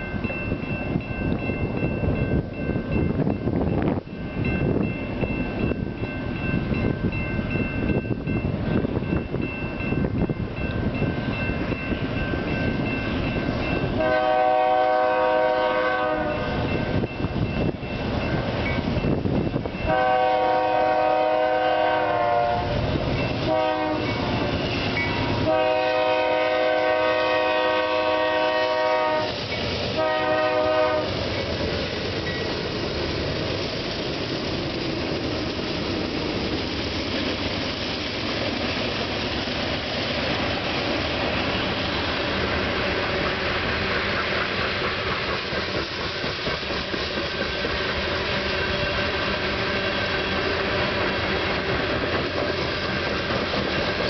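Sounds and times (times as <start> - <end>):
train wheels rumbling on rails: 0.0 - 54.0
train air horn blasts: 14.0 - 16.6, 19.8 - 22.8, 23.4 - 24.5, 25.4 - 31.2.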